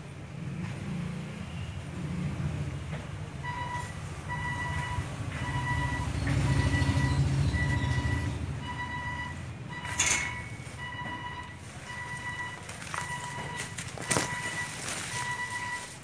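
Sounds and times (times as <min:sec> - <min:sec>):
engine rumble: 0:00.0 - 0:16.0
reversing alarm beeping: 0:03.4 - 0:16.0.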